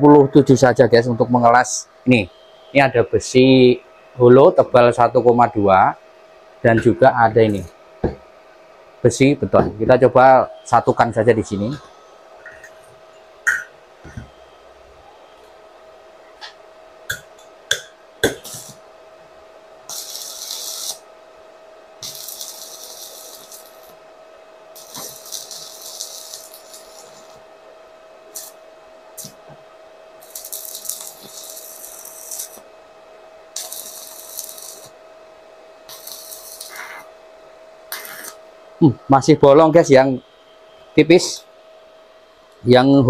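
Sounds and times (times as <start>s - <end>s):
faint steady whine: 0.0s - 43.0s
welding arc crackling and hissing: 6.6s - 8.2s, 9.0s - 15.6s, 16.3s - 40.2s, 40.9s - 41.6s.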